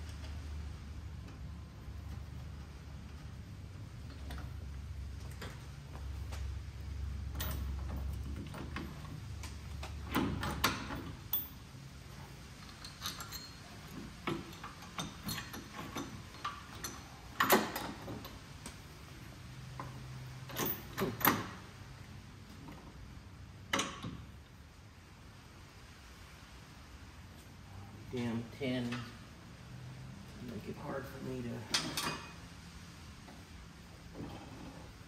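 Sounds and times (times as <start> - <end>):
metal tools clanking: 12.6 - 18.3, 31.6 - 32.5.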